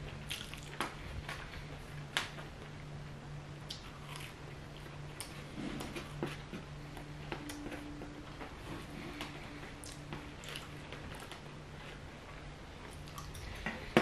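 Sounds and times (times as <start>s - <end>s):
steady low hum: 0.0s - 14.0s
chewing and mouth sounds: 0.2s - 0.9s, 3.7s - 6.4s, 9.8s - 12.0s, 12.8s - 13.7s.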